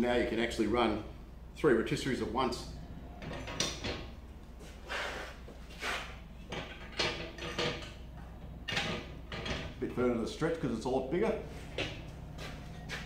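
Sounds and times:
metal brackets scraping and clanking: 3.1s - 10.6s.

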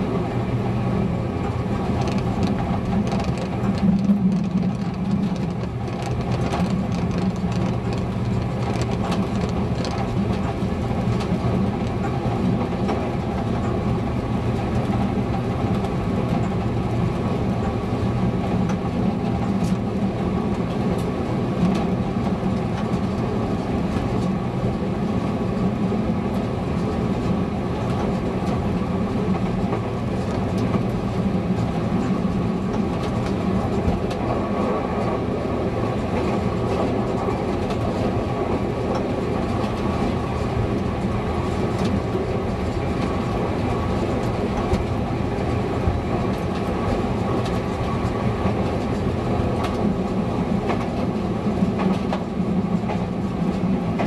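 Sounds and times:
diesel engine drone: 0.0s - 22.6s
wheels clicking over rails: 1.4s - 13.8s.

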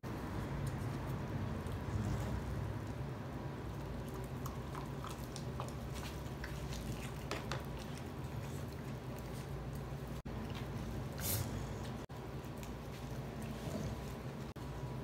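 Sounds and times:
dog chewing and smacking: 0.5s - 10.8s.

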